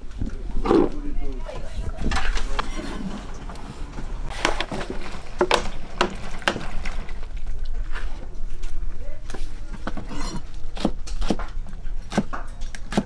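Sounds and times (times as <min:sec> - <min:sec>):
knife scraping on cutting board: 0:10.0 - 0:10.5.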